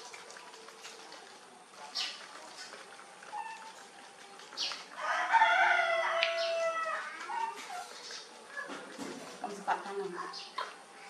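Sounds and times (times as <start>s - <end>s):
rooster crowing: 5.0s - 7.2s.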